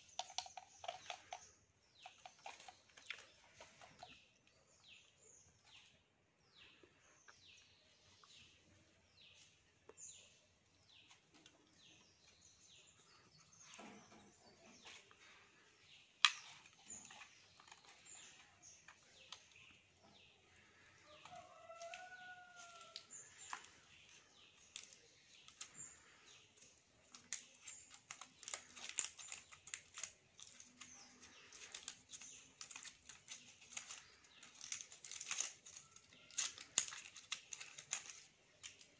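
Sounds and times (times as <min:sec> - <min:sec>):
wires clicking and rustling: 0:00.0 - 0:04.9, 0:13.0 - 0:38.9
faint bird chirping: 0:00.0 - 0:38.9.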